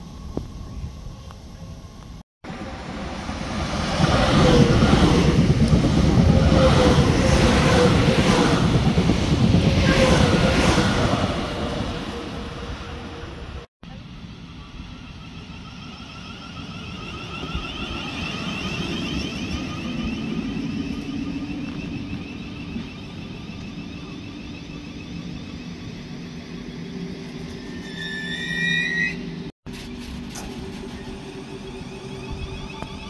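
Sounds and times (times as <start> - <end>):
wheels rumbling on rail: 0.0 - 33.0
train traction motor whine: 11.6 - 33.0
high brake squeal: 15.0 - 29.5, 30.5 - 33.0.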